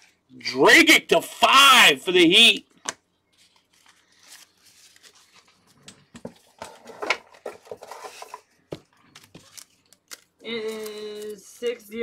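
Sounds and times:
cards and wrappers crinkling: 3.3 - 11.7.

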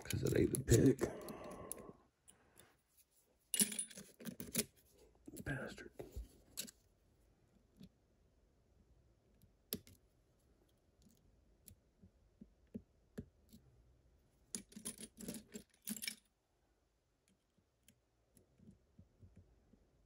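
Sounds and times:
metal tools clattering: 3.6 - 4.7.

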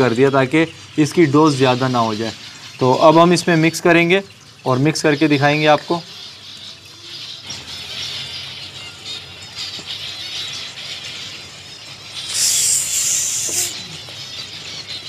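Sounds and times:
finches chirping: 0.0 - 15.0
sprayer hiss: 12.1 - 14.0.

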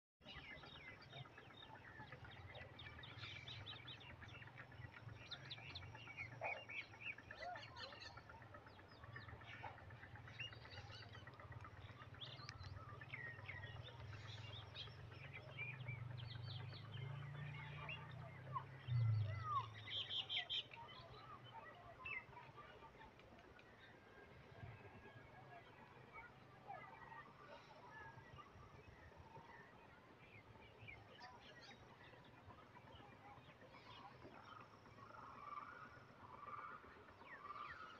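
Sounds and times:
small birds chirping: 0.2 - 22.7.

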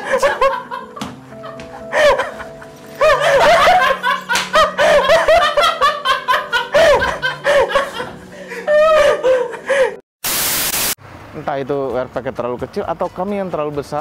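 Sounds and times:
people laughing hard: 0.0 - 10.0.

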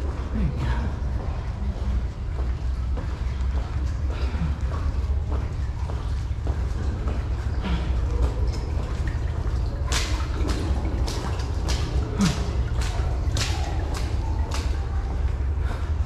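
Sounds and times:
footsteps splashing through water: 0.0 - 16.0.

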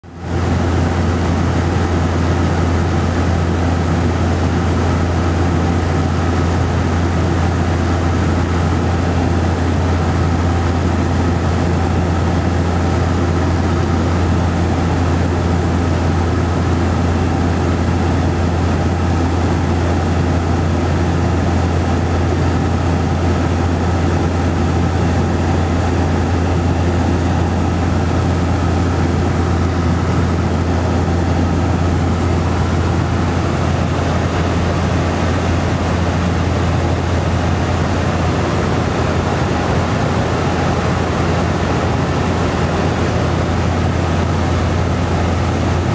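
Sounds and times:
turboprop engine humming: 0.0 - 45.9
airflow rushing: 23.9 - 45.9.

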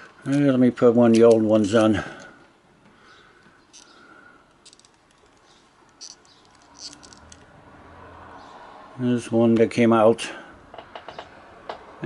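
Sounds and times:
small clicks and handling noise: 1.1 - 7.5.

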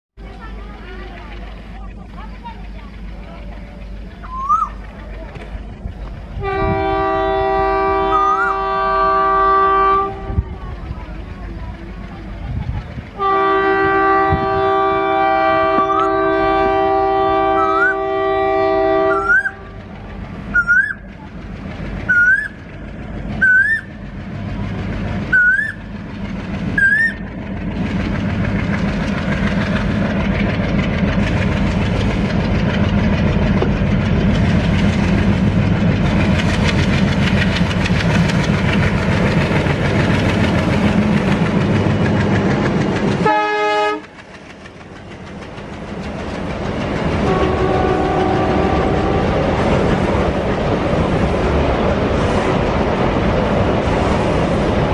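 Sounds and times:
wheels clickety-clack: 0.2 - 8.6, 10.0 - 14.6, 18.6 - 54.9
train engine rumble: 0.2 - 54.9
locomotive air horn: 6.4 - 10.5, 13.2 - 19.8, 43.2 - 44.1, 47.2 - 49.6.

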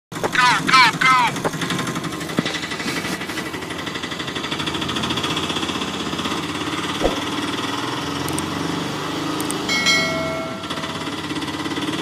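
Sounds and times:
engine running with rattling beat: 0.2 - 12.0
sharp click: 7.0 - 7.3.

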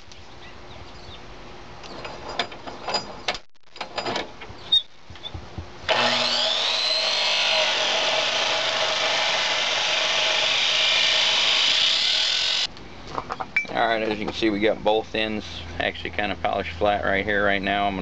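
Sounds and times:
chop saw cutting metal: 5.9 - 12.7.

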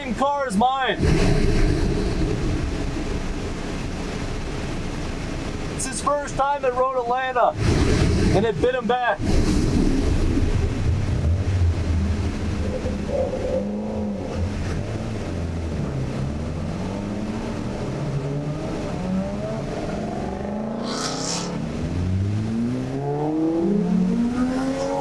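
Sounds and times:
car engine revving under load: 0.8 - 5.8, 7.6 - 25.0
short hiss: 20.8 - 21.6.

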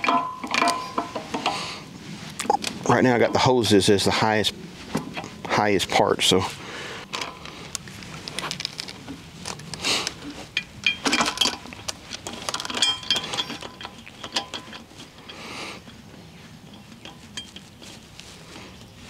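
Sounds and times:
ringing metallic clinks: 0.0 - 1.2, 10.6 - 11.6, 12.5 - 16.0, 16.6 - 17.7
metal hose fittings clicking: 0.0 - 1.6, 9.6 - 16.0, 16.6 - 17.8.

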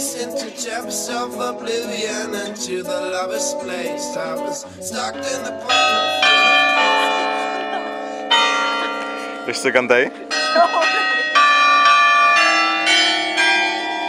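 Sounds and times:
background song: 0.0 - 9.4
church bells ringing: 4.9 - 14.0.

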